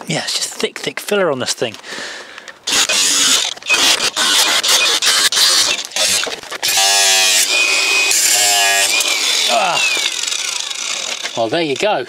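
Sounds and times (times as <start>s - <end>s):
angle grinder cutting steel: 2.6s - 12.0s.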